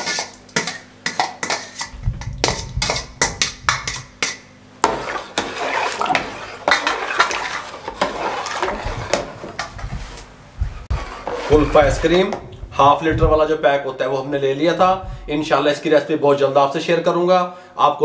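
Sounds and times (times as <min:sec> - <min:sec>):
thick mixture sloshing in pot: 0:00.0 - 0:13.8.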